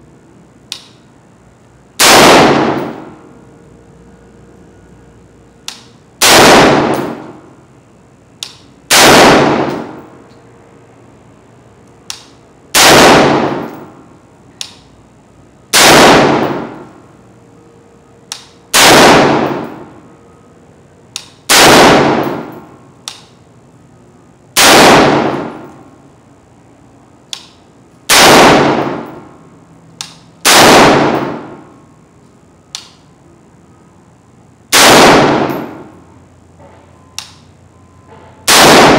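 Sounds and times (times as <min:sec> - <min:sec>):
rifle shots with echo: 0:02.0 - 0:03.2, 0:06.2 - 0:07.4, 0:08.9 - 0:10.0, 0:12.8 - 0:13.9, 0:15.7 - 0:16.9, 0:18.7 - 0:19.9, 0:21.5 - 0:22.6, 0:24.6 - 0:25.7, 0:28.1 - 0:29.2, 0:30.4 - 0:31.7, 0:34.7 - 0:35.9, 0:38.5 - 0:38.9.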